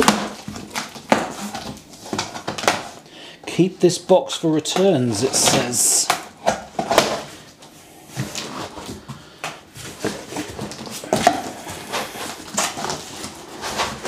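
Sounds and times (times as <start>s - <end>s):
rummaging in cardboard box: 0.0s - 3.0s, 6.4s - 14.0s.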